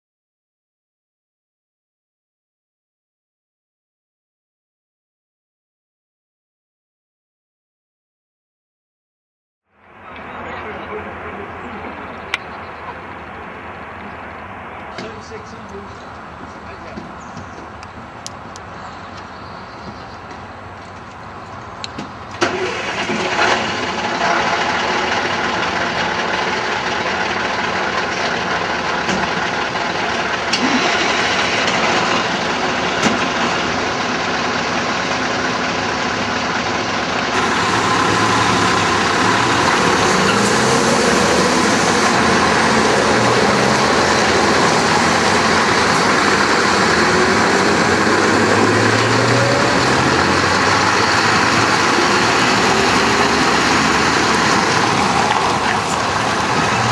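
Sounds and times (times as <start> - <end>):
diesel lorries idling: 9.8 - 56.9
engine knocks: 10.1 - 56.9
lorry engine revving pulling away: 22.3 - 56.9.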